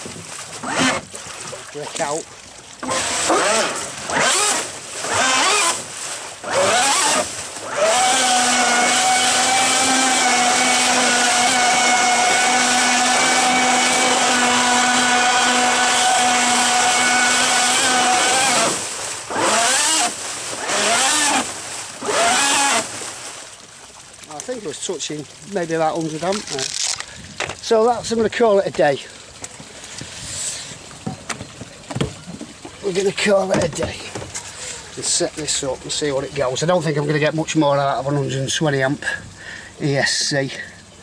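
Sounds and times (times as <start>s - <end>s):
water churning and spraying: 0.0s - 41.0s
electric motor whining: 2.8s - 22.9s.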